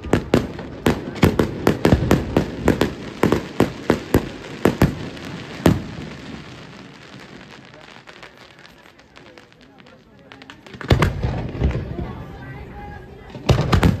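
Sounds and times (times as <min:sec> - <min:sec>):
firework crackling: 0:00.0 - 0:14.0
firework shells bursting: 0:13.4 - 0:14.0.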